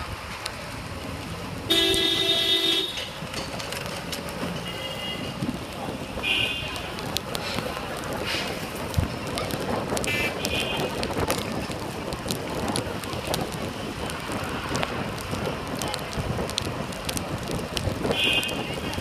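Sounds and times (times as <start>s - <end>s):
tyres hissing on wet road: 0.0s - 19.0s
wind buffeting microphone: 5.1s - 19.0s.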